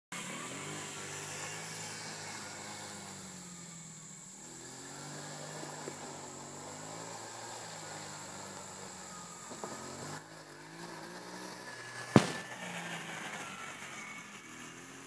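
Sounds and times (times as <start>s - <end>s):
quad bike engine running: 0.1s - 15.0s.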